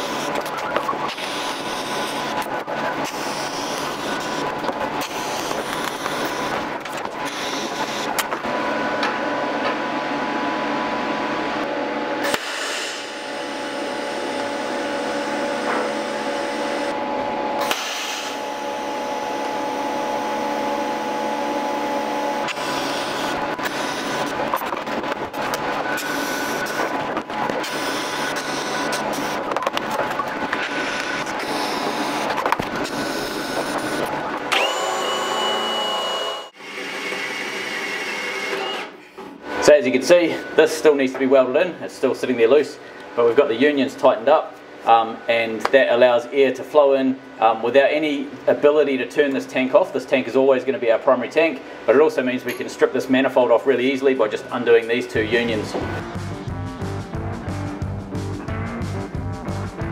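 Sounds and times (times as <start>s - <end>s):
welding arc hissing and humming: 0.0s - 8.3s, 12.2s - 27.0s, 27.6s - 36.5s
welding arc hissing and crackling: 3.0s - 6.6s
cordless drill whining: 5.0s - 6.5s, 7.3s - 8.1s, 32.9s - 38.9s.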